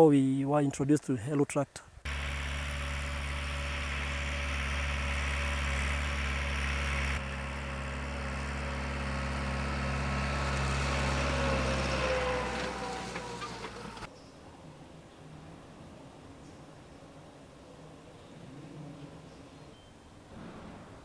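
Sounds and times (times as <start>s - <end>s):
tractor engine droning: 2.1s - 14.1s.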